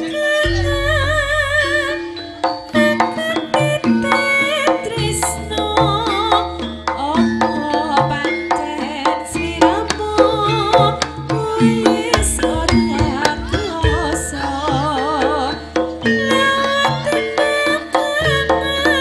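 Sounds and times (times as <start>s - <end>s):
wavering melody line: 0.2s - 5.4s, 9.4s - 17.6s
deep sustained low tone: 0.4s - 2.2s, 12.2s - 14.6s
stepped pitched notes: 0.4s - 3.4s, 12.0s - 15.0s
hand drum strokes: 9.9s - 15.5s.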